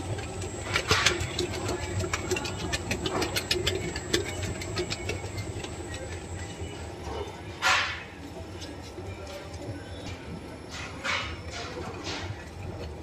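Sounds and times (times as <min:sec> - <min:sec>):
mixer beater clicking and rattling: 0:00.0 - 0:06.8
dough mixer motor hum: 0:00.0 - 0:07.5, 0:11.8 - 0:13.0.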